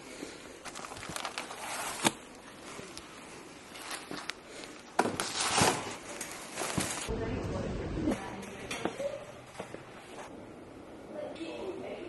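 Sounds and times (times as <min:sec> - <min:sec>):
plastic wrapping rustling: 0:00.2 - 0:07.1.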